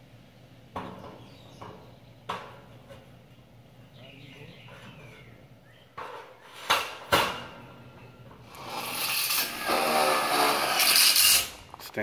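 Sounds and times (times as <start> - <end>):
power drill grinding into steel: 8.4 - 11.6.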